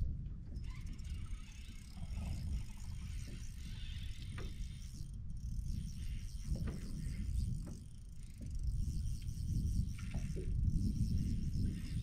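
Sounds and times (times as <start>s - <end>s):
wind buffeting microphone: 5.6s - 12.0s.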